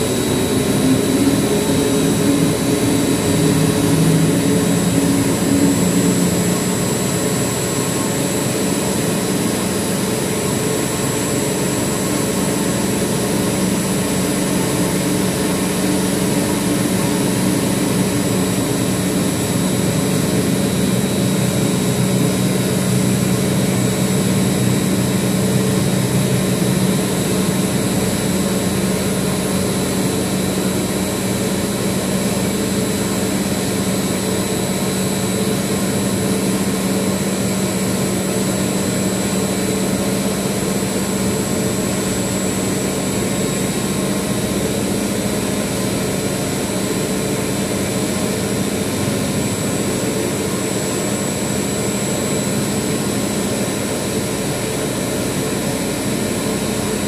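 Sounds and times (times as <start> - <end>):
compressor drone with high whine: 0.0 - 57.0.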